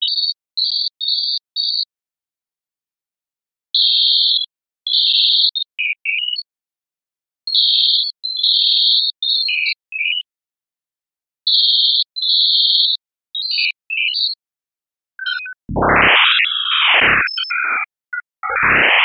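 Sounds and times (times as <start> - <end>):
high synthetic beeping tones: 15.2 - 19.0.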